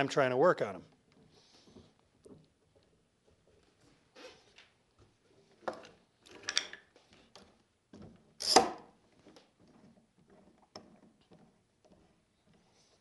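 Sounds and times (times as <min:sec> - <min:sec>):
clicks and knocks of clamps: 0:05.6 - 0:12.0.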